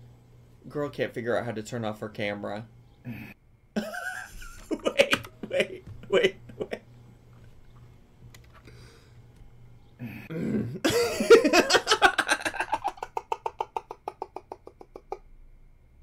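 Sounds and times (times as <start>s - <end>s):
man laughing hard: 3.8s - 6.8s, 10.8s - 15.2s.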